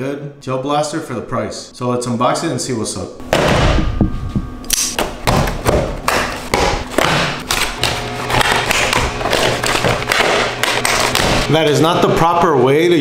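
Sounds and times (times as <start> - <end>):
thumps and knocks on table: 3.3 - 7.4
card and plastic crackling: 6.9 - 11.5.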